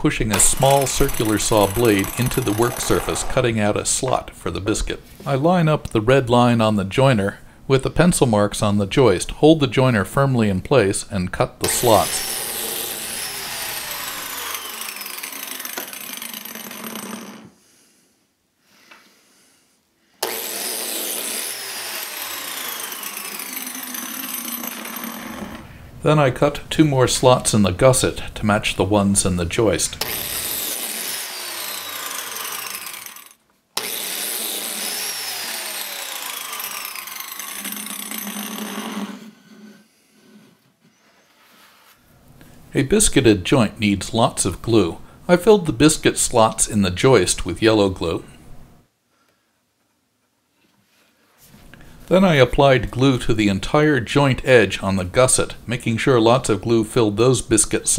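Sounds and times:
biscuit joiner motor whine: 0.3 - 3.5, 11.6 - 17.5, 20.2 - 25.7, 30.0 - 39.3.

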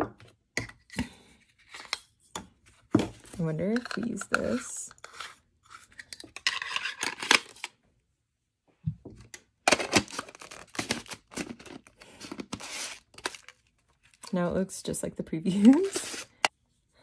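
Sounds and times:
plastic parts clicking and scraping: 3.6 - 7.8.

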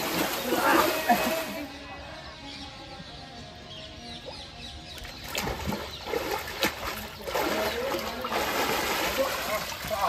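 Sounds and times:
water splashing: 0.0 - 1.7, 5.0 - 10.0.

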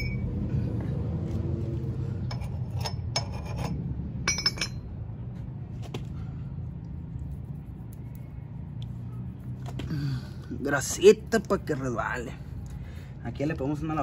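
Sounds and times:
low steady rumble: 0.0 - 14.0
metal parts clinking: 2.3 - 4.8.

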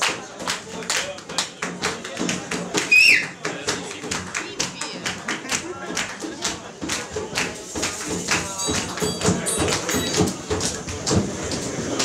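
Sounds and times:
congas and timbales strikes: 0.0 - 12.0.

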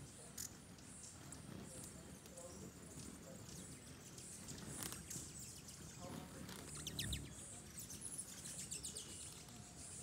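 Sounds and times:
hummingbirds chirping: 0.0 - 10.0.

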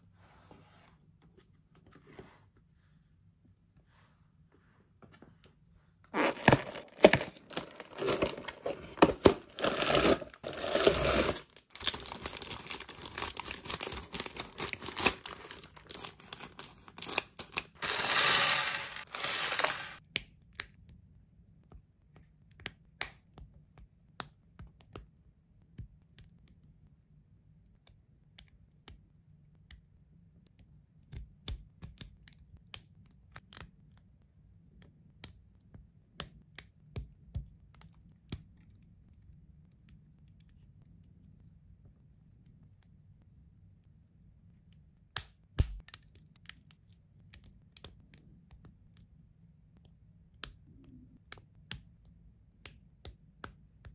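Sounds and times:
plastic bricks clattering on table: 6.2 - 12.6, 17.0 - 20.0
packaging being torn open: 6.2 - 20.0
plastic bags crinkling: 6.2 - 20.0.

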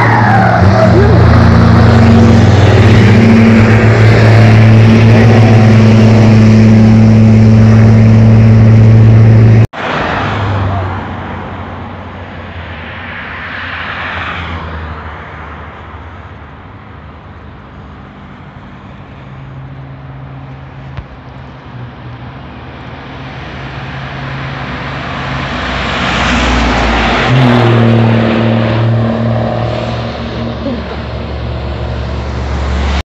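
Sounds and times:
truck engine passing: 0.0 - 11.9, 21.5 - 33.0
car passing: 6.9 - 16.8, 21.8 - 33.0.

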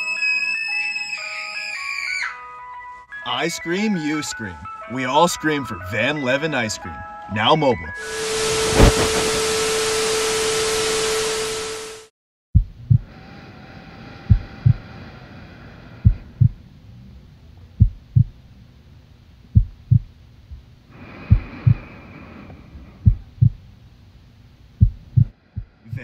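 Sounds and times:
faint high droning tone: 8.0 - 12.0
heartbeat thumps: 8.4 - 9.6, 12.6 - 13.1, 14.3 - 14.8, 16.0 - 16.6, 17.8 - 18.4, 19.5 - 20.7, 21.3 - 21.9, 23.0 - 23.7, 24.8 - 25.8.

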